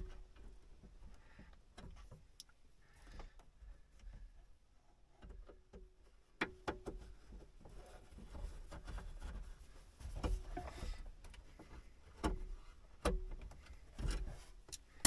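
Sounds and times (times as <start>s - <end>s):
clicks of wires and connectors: 13.0s - 15.0s.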